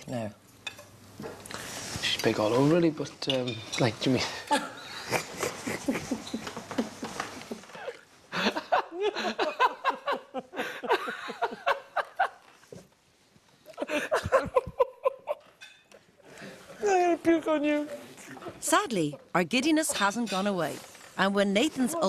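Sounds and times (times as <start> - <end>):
man and woman laughing: 4.5 - 12.5, 13.7 - 15.6.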